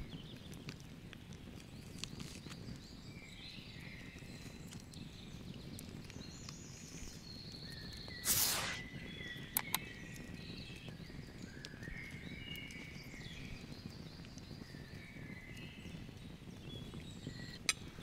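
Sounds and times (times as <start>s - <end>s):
faint outdoor background: 0.0s - 18.0s
wild birds singing and chirping: 0.0s - 18.0s
sharp clicks: 9.5s - 9.8s.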